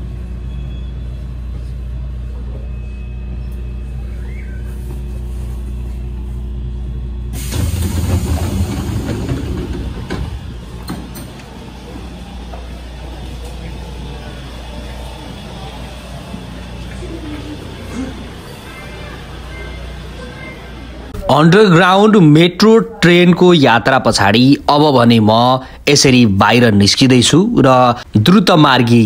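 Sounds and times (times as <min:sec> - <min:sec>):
metro train low hum: 0:00.0 - 0:21.2
train doors hissing open: 0:07.3 - 0:21.2.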